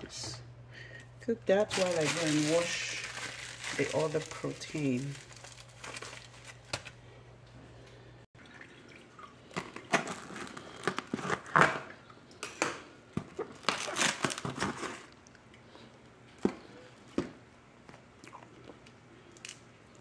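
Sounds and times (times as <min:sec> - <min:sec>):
plastic cling wrap crinkling: 0:01.5 - 0:07.0, 0:09.6 - 0:11.8, 0:13.4 - 0:15.2.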